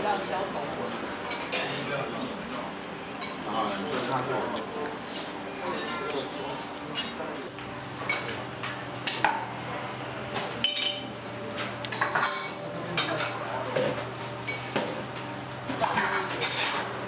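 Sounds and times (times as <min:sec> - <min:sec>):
metal spoon clinking on ceramic bowl: 0:10.6 - 0:11.1.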